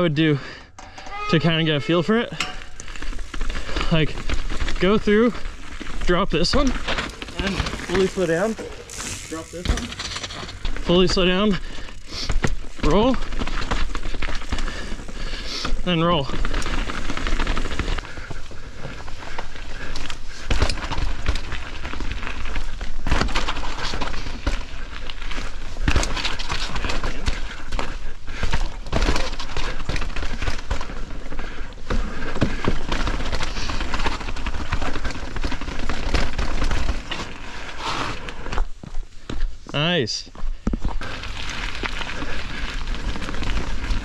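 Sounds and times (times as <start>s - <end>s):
bike knocking and rattling: 0.4s - 39.8s, 40.4s - 44.0s
bike tyres rumbling on trail: 1.5s - 44.0s
bike landing hits: 6.5s - 11.0s.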